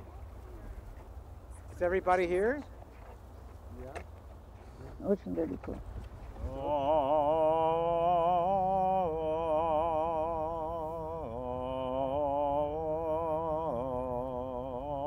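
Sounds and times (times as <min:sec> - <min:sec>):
solo voice chanting prayer: 0:06.4 - 0:15.0.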